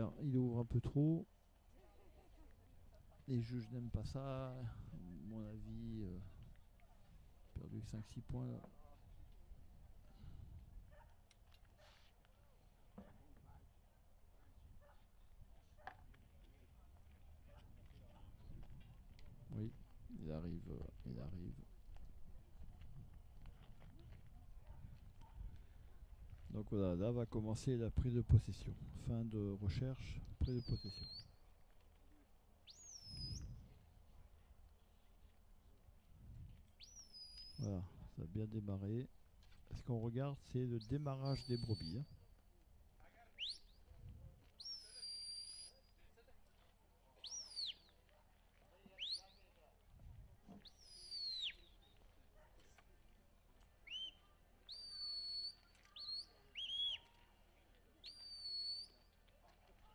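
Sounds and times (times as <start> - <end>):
shepherd's whistle blasts: 44.6 - 45.8, 50.6 - 51.7, 53.9 - 57.1, 58.0 - 59.0
sharp rising whistle blasts: 58.1 - 59.0.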